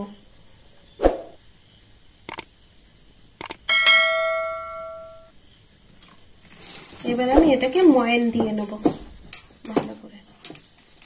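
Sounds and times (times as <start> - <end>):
mouse clicks: 2.3 - 2.5, 3.4 - 3.6
bell chime: 3.7 - 5.3.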